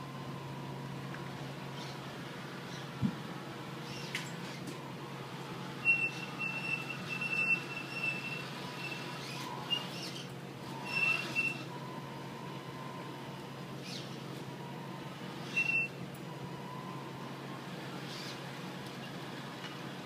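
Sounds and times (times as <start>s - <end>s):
toy truck motor humming: 5.8s - 12.0s
high-pitched squeal: 10.8s - 11.7s.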